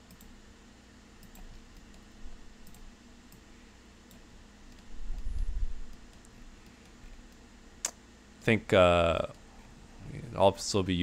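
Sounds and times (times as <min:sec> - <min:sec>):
computer mouse clicks: 0:00.0 - 0:00.4, 0:01.2 - 0:08.0
steady low hum: 0:00.0 - 0:11.0.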